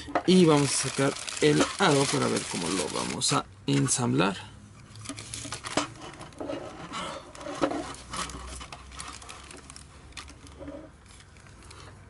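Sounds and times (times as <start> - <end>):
plastic bag crinkling: 0.3 - 3.4, 7.3 - 11.7.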